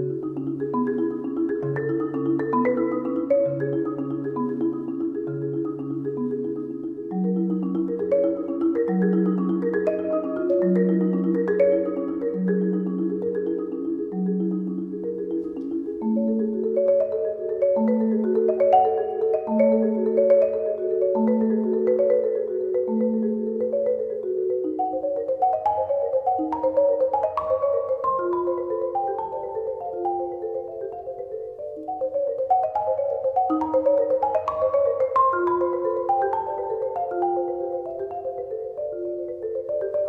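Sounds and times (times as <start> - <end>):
marimba playing: 0.0 - 40.0.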